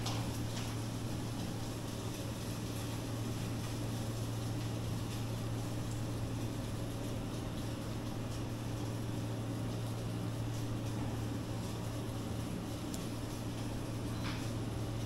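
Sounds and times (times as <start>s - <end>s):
low machine hum: 0.0s - 15.0s.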